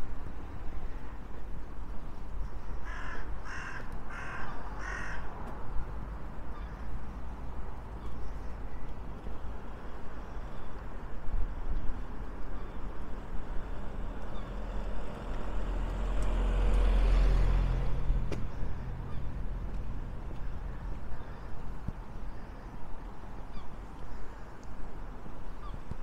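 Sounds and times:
wind rumble on microphone: 0.0s - 26.0s
crow cawing: 2.8s - 5.3s.

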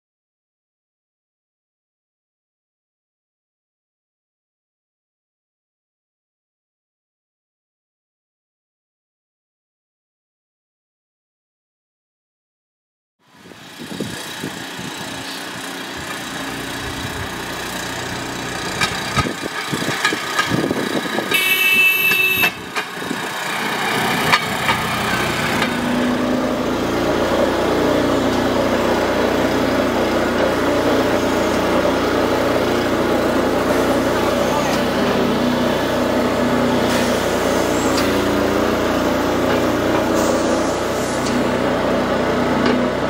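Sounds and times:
small petrol engine running: 13.2s - 43.0s
brief high-pitched tone: 21.3s - 22.6s.

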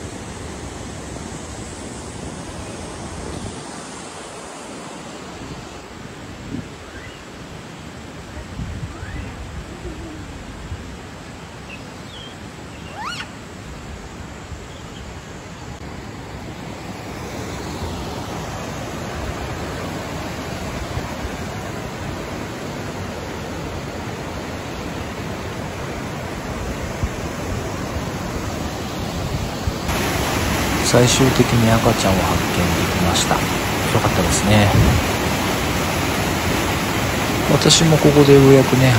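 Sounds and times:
fast river rushing: 0.0s - 38.9s
short rising animal call: 12.8s - 13.3s.

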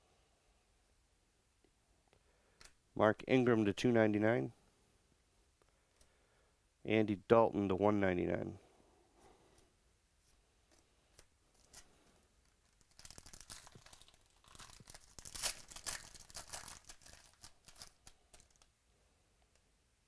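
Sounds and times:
plastic wrapper crinkling: 11.1s - 18.7s.

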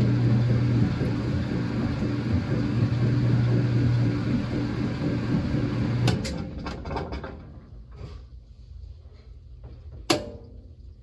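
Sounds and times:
washing machine humming: 0.0s - 11.0s
machine clicks and knocks: 5.1s - 7.6s.

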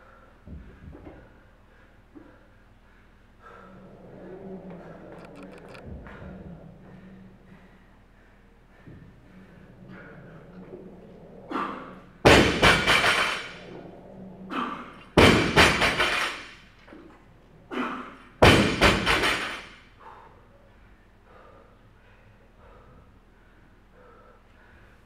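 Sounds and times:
weight plates rattling: 9.8s - 13.9s.

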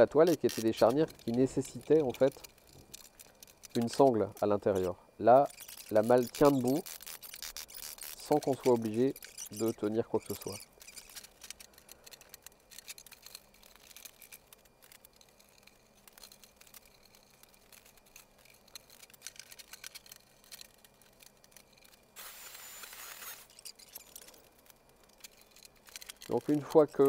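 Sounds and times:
electric drill running: 22.2s - 23.6s.

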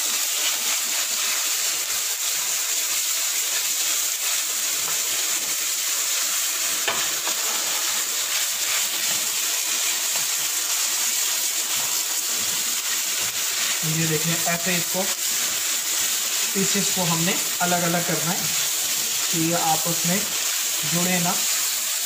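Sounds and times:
meat sizzling in a wok: 0.0s - 22.0s
spatula scraping wok: 4.7s - 22.0s.

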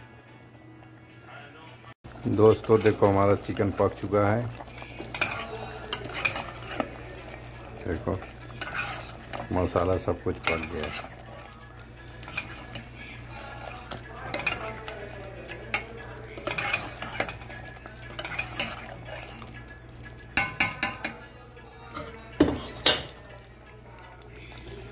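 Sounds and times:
spoon stirring thick curry: 2.1s - 24.9s
spoon clinking against pot: 4.5s - 7.4s, 8.2s - 23.4s.

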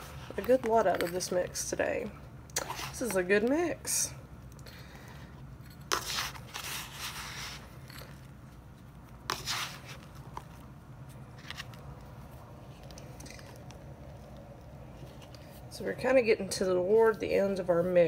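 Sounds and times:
crumbly mix scraping and crunching: 0.0s - 1.8s, 5.0s - 16.1s.

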